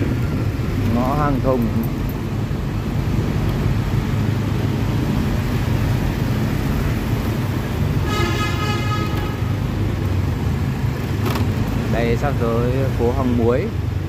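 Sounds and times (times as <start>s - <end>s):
motorbike traffic rumble: 0.0s - 14.0s
vehicle horn: 8.0s - 9.7s.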